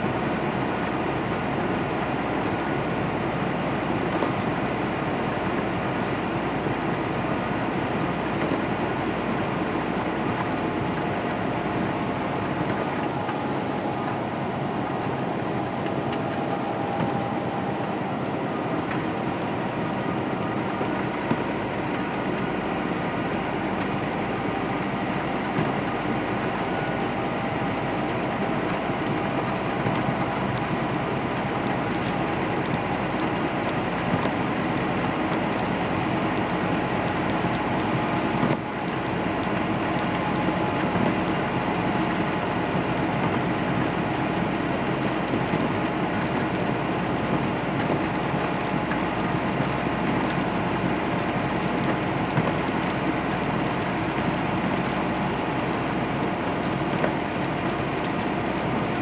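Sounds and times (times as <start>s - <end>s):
diesel engine hum: 0.0s - 59.0s.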